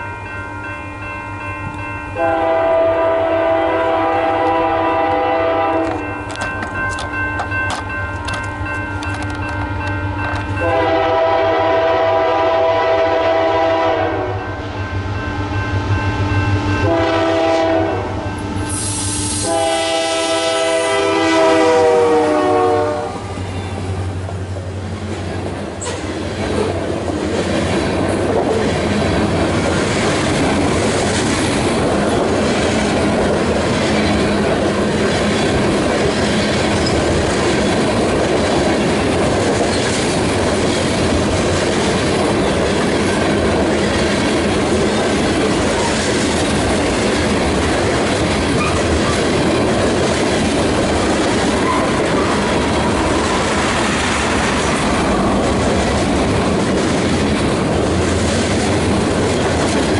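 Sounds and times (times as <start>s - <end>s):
train wheels on rails: 0.0s - 59.9s
wheels clicking over rail joints: 24.2s - 59.9s.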